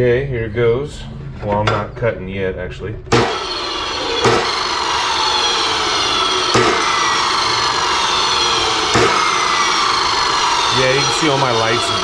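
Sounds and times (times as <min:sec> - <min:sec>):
sharp knocks: 0:03.1 - 0:03.5, 0:04.2 - 0:04.6, 0:06.5 - 0:06.9, 0:08.9 - 0:09.3
chop saw motor whining: 0:03.1 - 0:12.0.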